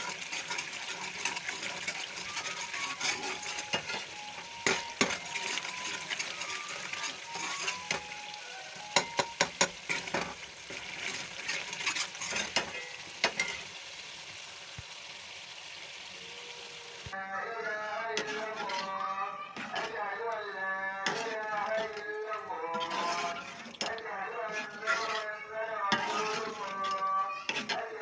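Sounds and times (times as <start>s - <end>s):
spices sizzling in oil: 0.0s - 28.0s
ladle clinking against pot: 2.4s - 5.6s.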